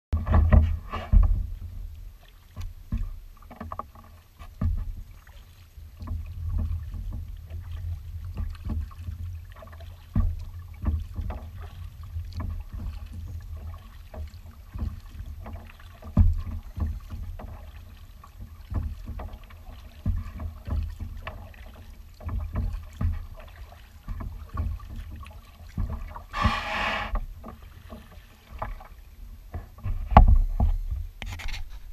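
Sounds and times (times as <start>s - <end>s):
knocks against kayak hull: 0.2s - 1.9s, 2.5s - 5.2s, 6.0s - 31.1s
paddle splashing: 0.2s - 31.9s
hull sliding onto sand: 26.3s - 27.2s.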